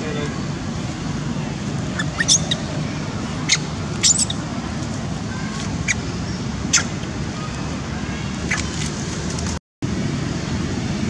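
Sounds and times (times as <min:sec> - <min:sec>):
baby monkey squealing: 0:01.9 - 0:02.7, 0:03.4 - 0:04.4, 0:05.8 - 0:06.0, 0:06.7 - 0:07.0.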